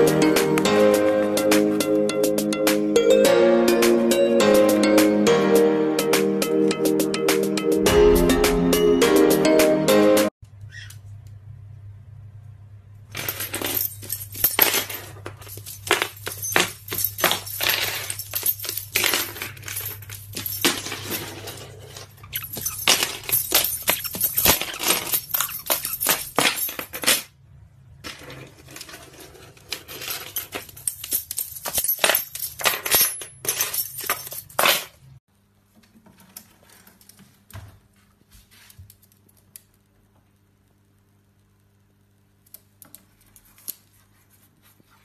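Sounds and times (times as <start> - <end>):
small objects clinking on floor: 13.1 - 27.3, 28.0 - 35.0.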